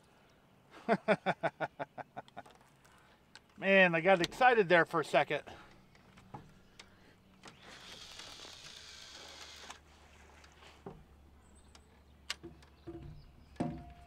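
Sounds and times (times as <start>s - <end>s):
faint clicks of rod and reel: 5.7s - 12.8s
reel spool spinning hiss: 7.6s - 9.8s.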